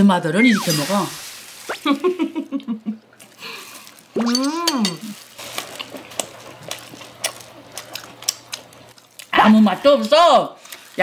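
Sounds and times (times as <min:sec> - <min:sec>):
person humming: 0:04.2 - 0:05.1
chewing and mouth smacks: 0:05.6 - 0:09.3.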